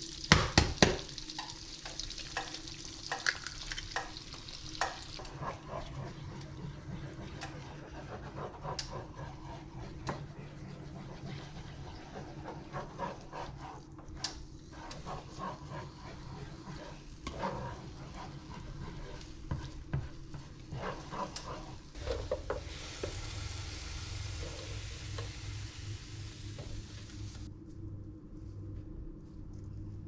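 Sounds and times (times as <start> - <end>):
eggs sizzling: 0.0 - 27.5
spatula scraping frying pan: 4.5 - 25.4.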